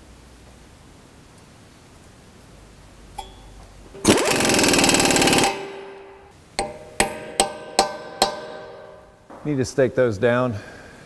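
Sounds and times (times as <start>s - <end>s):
hammer striking metal punch: 3.2s - 9.4s
loud rapid mechanical rattle: 4.0s - 6.1s.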